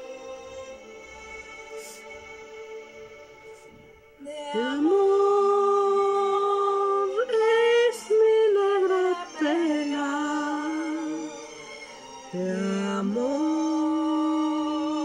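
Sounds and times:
person singing long notes: 3.6 - 11.4, 12.3 - 15.0.

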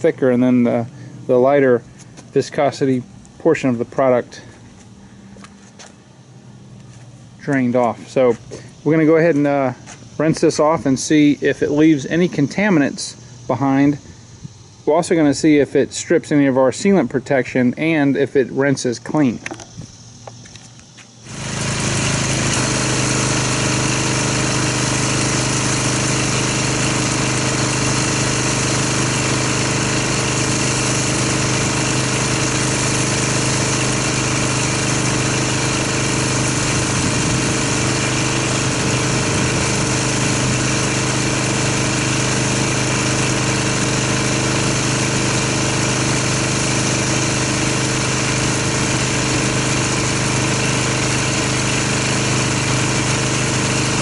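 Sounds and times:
pressure washer motor running: 0.0 - 54.0
water spray hissing: 21.3 - 52.2.

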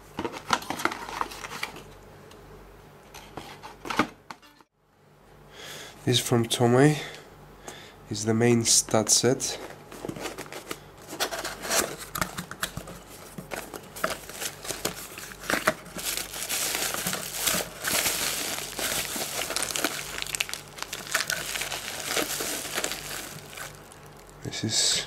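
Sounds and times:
cardboard box rustling: 12.9 - 23.9
bubble wrap crinkling: 13.0 - 24.5.

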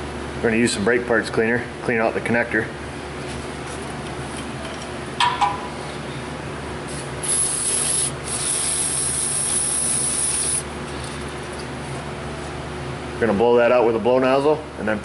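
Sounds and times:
steady low hum: 0.0 - 15.0
aerosol spray hiss: 7.2 - 10.6.

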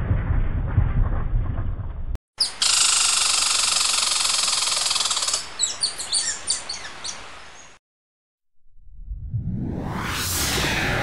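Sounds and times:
high bird-like chirps: 2.4 - 7.8
quick whoosh: 8.8 - 11.0.

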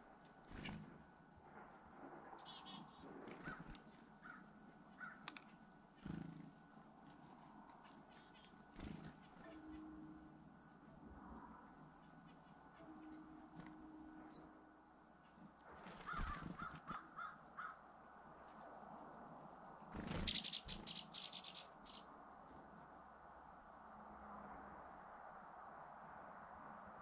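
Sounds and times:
harsh bird calls: 2.2 - 5.2, 15.6 - 17.8, 20.1 - 22.1
high bird chirps: 9.2 - 10.9, 11.9 - 14.9, 20.2 - 22.1.

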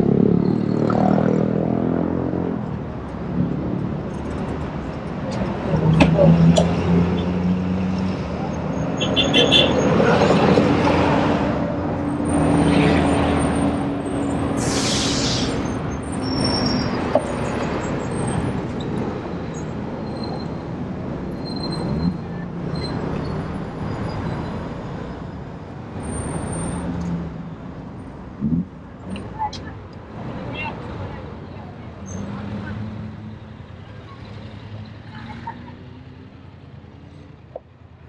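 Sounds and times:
street traffic passing: 0.0 - 38.0
short hiss of air: 14.6 - 15.6.

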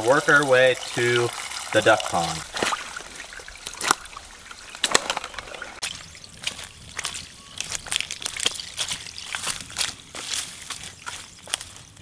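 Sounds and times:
stream trickling and splashing: 0.0 - 12.0
footsteps crunching dry leaves: 2.5 - 12.0.

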